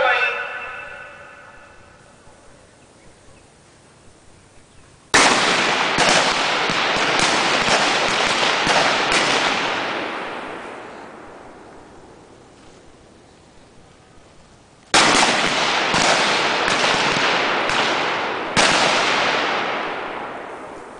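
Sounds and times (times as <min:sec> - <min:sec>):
rifles firing: 0:05.1 - 0:11.2, 0:14.9 - 0:20.9
gunshot echo: 0:05.2 - 0:11.5, 0:15.0 - 0:20.9.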